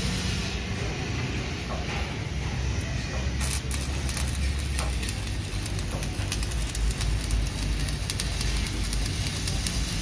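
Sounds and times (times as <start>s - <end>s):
welding arc crackling: 3.0s - 10.0s.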